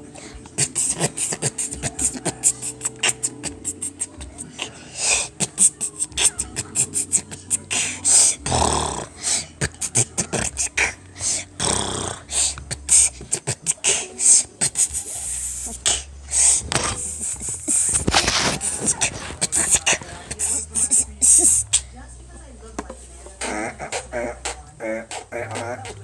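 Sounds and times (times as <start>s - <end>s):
beatboxing hissing hi-hat: 0.0s - 21.8s, 23.4s - 26.0s
beatboxing clicks and pops: 0.4s - 4.4s, 9.6s - 21.8s, 23.4s - 26.0s.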